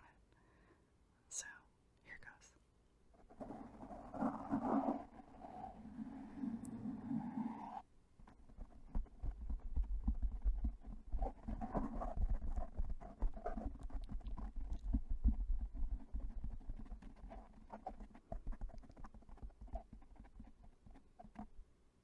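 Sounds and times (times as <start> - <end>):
fingers rubbing foam windscreen: 3.4 - 21.5.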